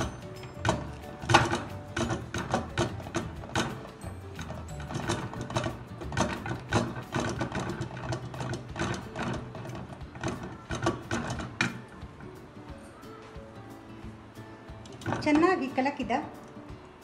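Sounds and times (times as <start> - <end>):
wooden spoon scraping steel pot: 0.0 - 11.8.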